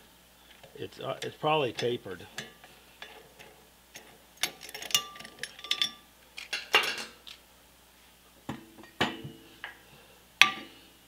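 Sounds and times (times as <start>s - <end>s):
metal clinks and clanks: 4.4s - 6.0s.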